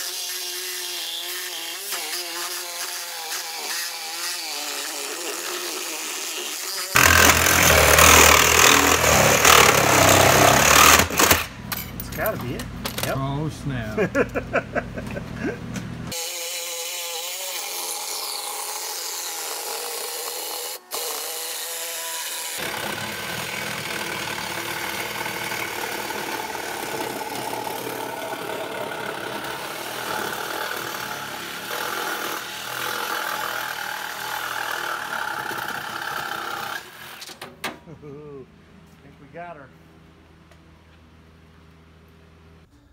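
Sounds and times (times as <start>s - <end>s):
power tool cutting steel: 0.0s - 11.5s, 16.1s - 37.3s.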